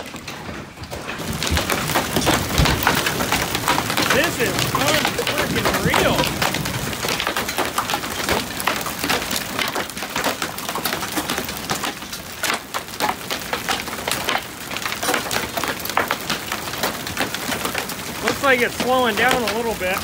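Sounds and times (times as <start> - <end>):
hailstones pelting wooden deck: 0.0 - 20.0.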